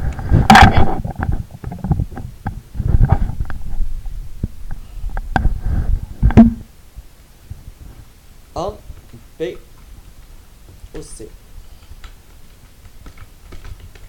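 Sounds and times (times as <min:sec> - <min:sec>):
computer keyboard typing: 0:11.7 - 0:14.0.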